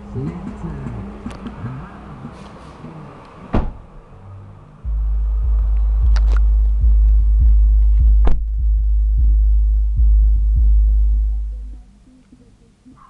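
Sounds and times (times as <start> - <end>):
pulsing deep bass drone: 3.8 - 12.0
sharp click: 6.1 - 6.5.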